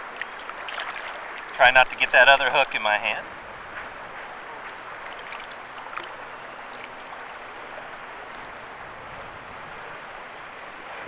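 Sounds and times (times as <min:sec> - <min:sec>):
river water running: 0:00.0 - 0:11.0
fish splashing: 0:00.1 - 0:01.6, 0:04.6 - 0:07.1.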